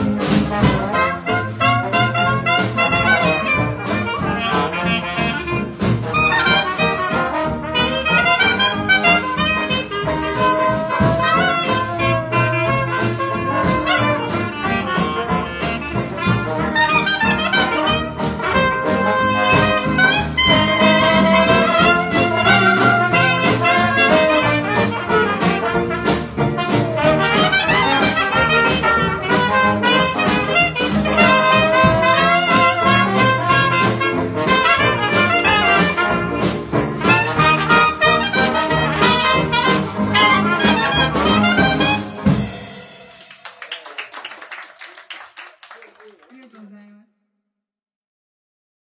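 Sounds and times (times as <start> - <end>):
clarinet: 0.0 - 43.3
trombone: 0.0 - 43.6
jazz band playing: 0.0 - 44.8
drums: 0.0 - 45.6
trumpet: 0.0 - 45.8
banjo: 17.6 - 43.0.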